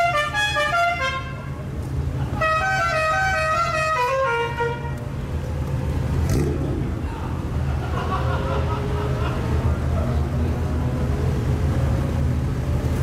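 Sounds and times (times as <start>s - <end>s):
musical air horn: 0.0s - 1.6s, 2.4s - 5.0s
car engines idling: 1.2s - 13.0s.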